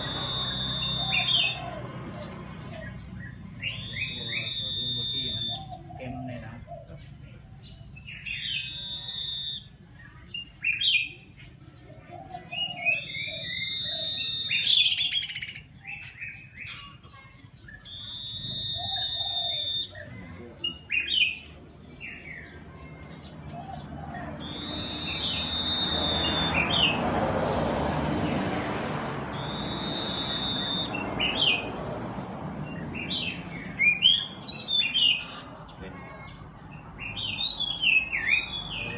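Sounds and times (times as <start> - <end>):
bird singing whistled phrases: 0.0 - 1.8, 2.6 - 6.2, 8.0 - 11.2, 11.9 - 17.0, 17.6 - 22.6, 24.2 - 27.0, 29.3 - 31.7, 32.7 - 35.4, 37.0 - 38.9
bird chirping: 0.0 - 27.3, 28.2 - 38.9
broad rushing noise: 24.3 - 34.6.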